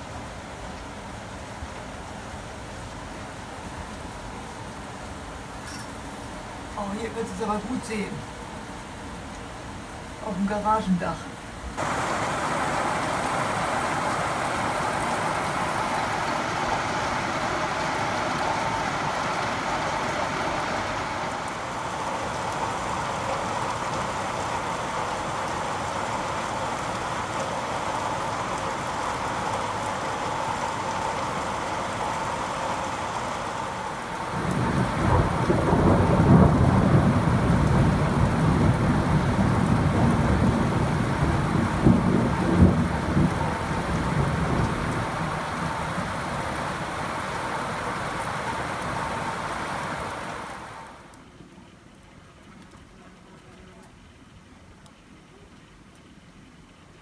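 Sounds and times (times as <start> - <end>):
heavy rain pouring: 0.0 - 57.0
thunder rumbling: 34.2 - 47.2.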